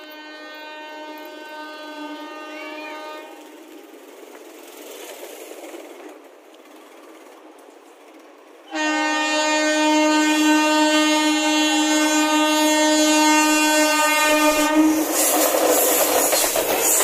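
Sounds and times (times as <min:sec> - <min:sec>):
locomotive horn blast: 0:00.0 - 0:03.4, 0:08.7 - 0:15.1
train wheels clattering on rails: 0:03.3 - 0:08.6, 0:14.8 - 0:17.0.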